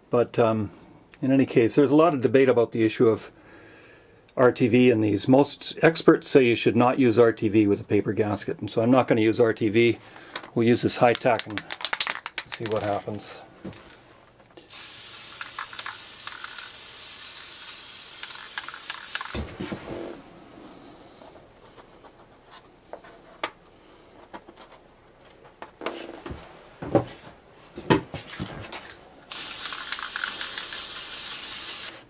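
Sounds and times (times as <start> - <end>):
aerosol spray hissing: 14.6 - 19.4, 29.3 - 32.0.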